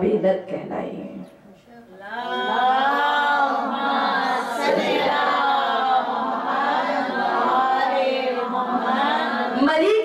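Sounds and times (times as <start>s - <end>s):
women chanting in unison: 2.0s - 10.0s.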